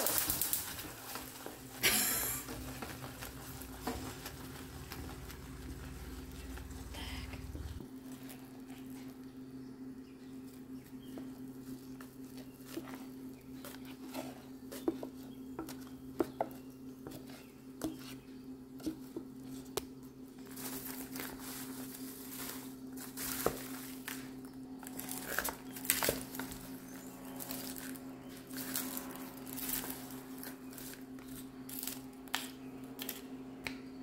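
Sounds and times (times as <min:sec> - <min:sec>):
popcorn crackling: 0:00.0 - 0:09.2, 0:20.4 - 0:33.3
popcorn rustling and crunching: 0:00.0 - 0:09.5, 0:18.9 - 0:33.4
low hum: 0:00.0 - 0:34.0.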